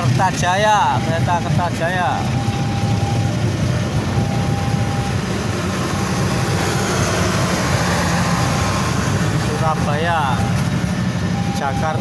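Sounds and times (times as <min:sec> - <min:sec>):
faint steady whine: 0:00.1 - 0:06.6.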